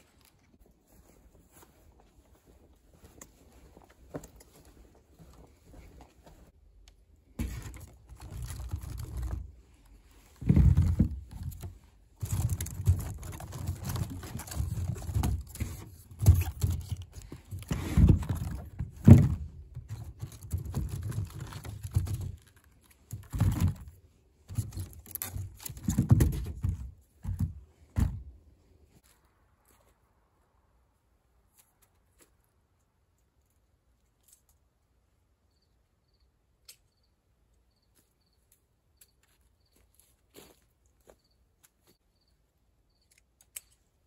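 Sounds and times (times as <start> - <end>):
wicker basket rustling and creaking: 7.4 - 28.2.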